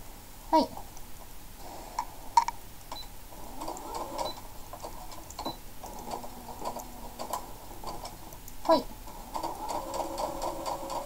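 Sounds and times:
sewing machine stitching: 3.4s - 11.0s.

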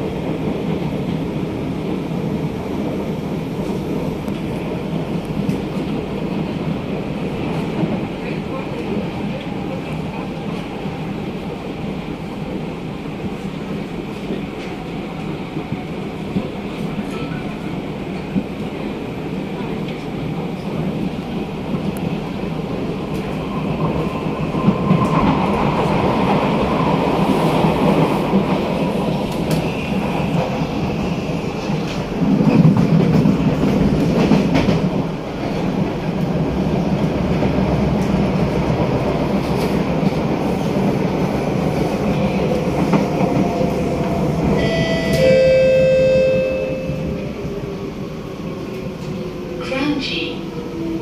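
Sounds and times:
train wheels rumbling on track: 0.0s - 51.0s
high-pitched tone: 44.6s - 47.2s.

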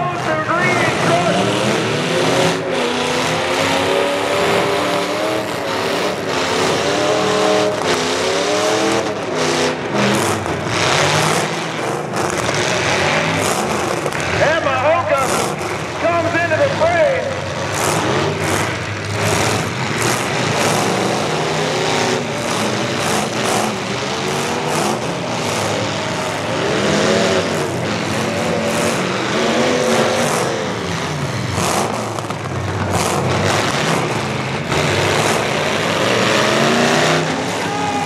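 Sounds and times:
truck engines revving: 0.0s - 38.0s
trucks crashing bangs: 17.4s - 38.0s.

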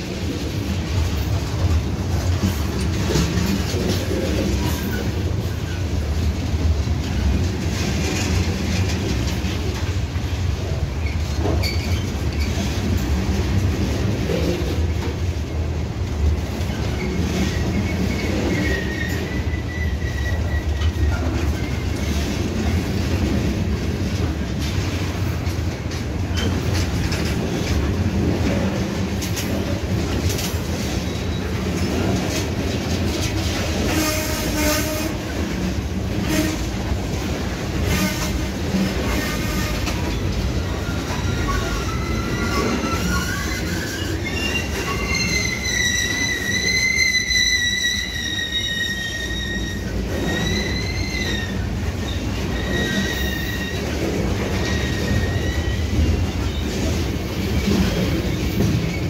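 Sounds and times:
train wheels rumbling on rail: 0.0s - 59.0s
high wheel squeal: 40.6s - 53.9s, 54.6s - 56.6s.

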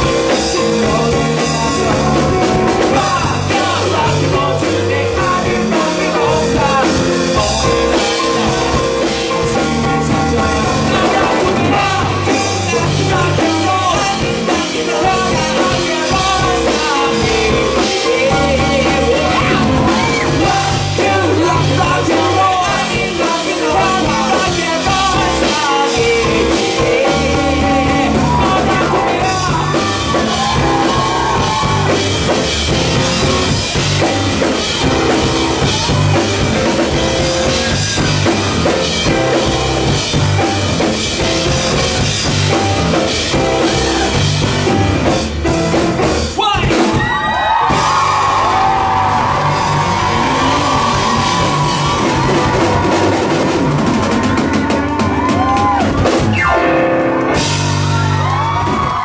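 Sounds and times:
man singing lead vocals: 0.0s - 44.8s, 46.3s - 53.6s
distorted electric guitars: 0.0s - 46.2s, 47.0s - 59.0s
bass guitar: 0.0s - 59.0s
drum kit: 0.0s - 59.0s.

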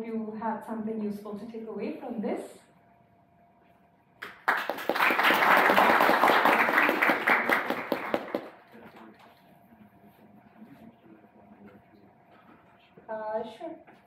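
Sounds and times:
audience applauding: 4.2s - 8.6s.

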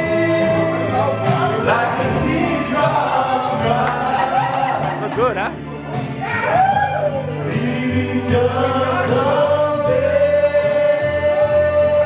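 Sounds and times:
man singing into microphone: 0.0s - 4.8s, 7.5s - 12.0s
karaoke backing music: 0.0s - 12.0s.

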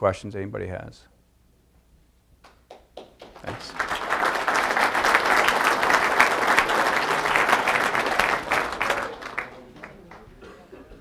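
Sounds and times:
audience applauding: 2.7s - 10.5s.

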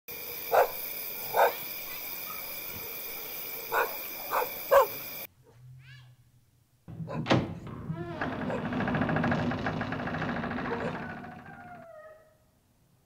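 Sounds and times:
night ambience hiss: 0.1s - 5.3s
dog barking: 0.3s - 2.4s, 3.2s - 5.6s, 7.0s - 7.3s, 10.6s - 11.2s.

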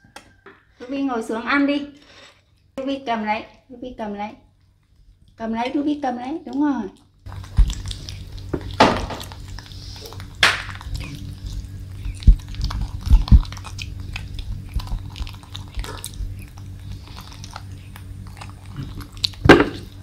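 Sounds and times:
monkeys chewing pumpkin: 4.5s - 20.0s.

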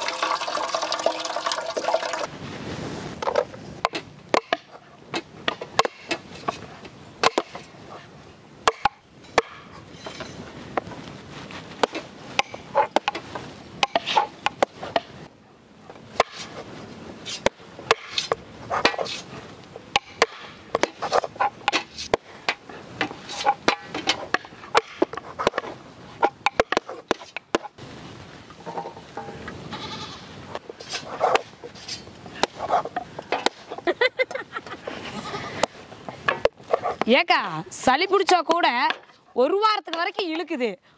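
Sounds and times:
bleat-like calls: 29.7s - 30.3s.

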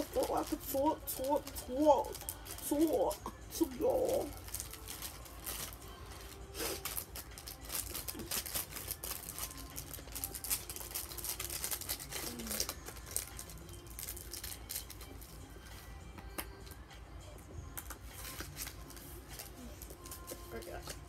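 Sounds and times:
rustling and crinkling: 4.0s - 15.8s.

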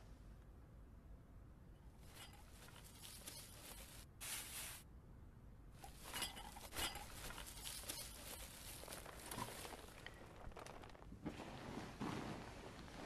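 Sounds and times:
faint rustling: 2.0s - 4.8s, 5.8s - 13.0s.

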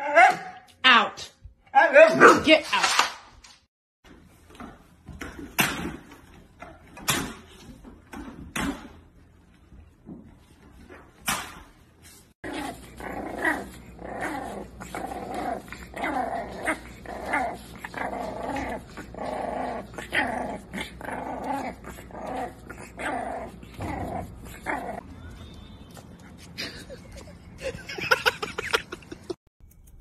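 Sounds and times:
puppy growling and yapping: 12.4s - 25.0s.

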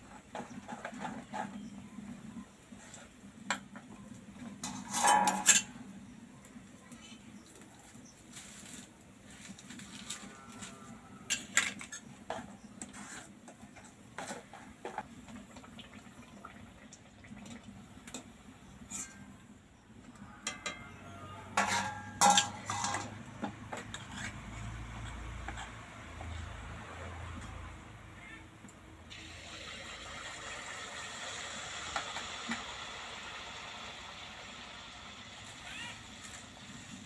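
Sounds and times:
metal utensils clinking on wok: 4.6s - 5.8s, 11.3s - 12.5s, 20.4s - 25.8s.

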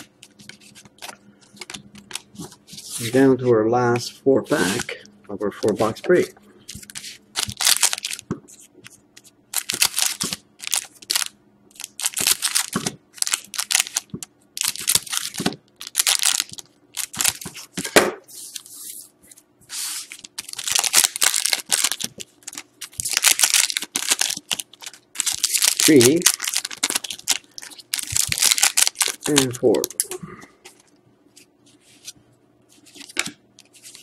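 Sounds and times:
foil wrappers crinkling: 4.5s - 17.8s, 19.7s - 30.1s, 32.7s - 34.0s.

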